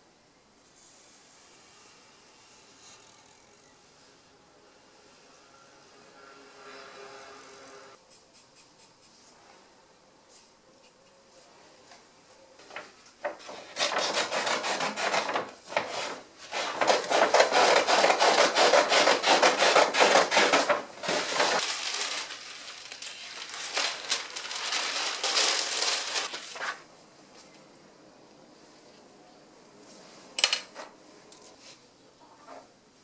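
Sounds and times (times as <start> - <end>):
paper rustling and crackling: 12.7 - 18.5, 19.2 - 26.9.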